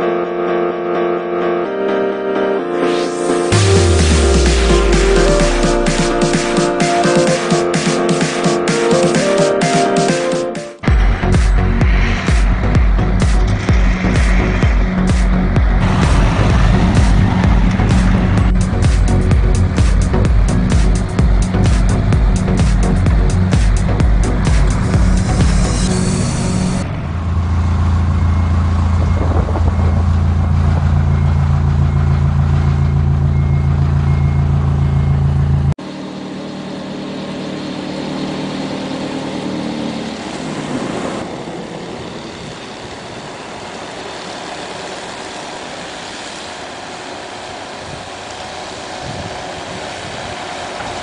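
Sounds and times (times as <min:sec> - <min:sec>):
snow blower engine running: 0:03.5 - 0:10.0, 0:10.8 - 0:51.0
trucks driving past on slushy road: 0:11.0 - 0:51.0
faint repeating beep: 0:28.2 - 0:35.5.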